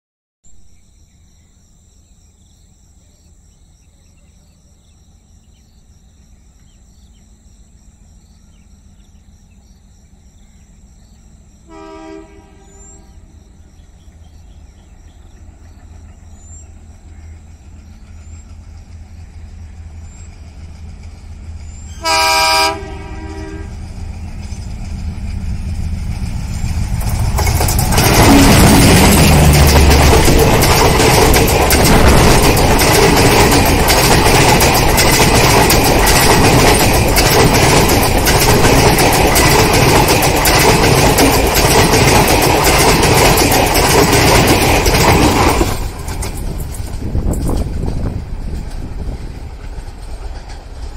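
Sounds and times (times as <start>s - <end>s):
diesel locomotive engine rumble: 2.6s - 50.9s
locomotive horn blasts: 11.7s - 13.3s, 22.0s - 23.8s.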